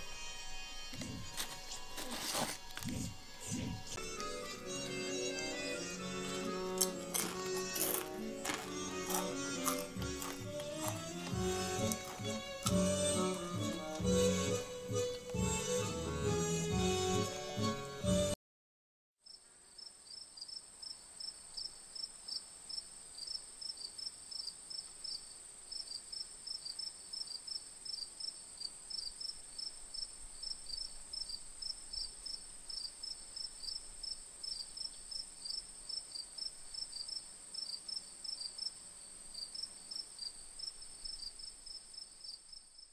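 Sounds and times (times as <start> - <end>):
crickets chirping: 19.3 - 42.9.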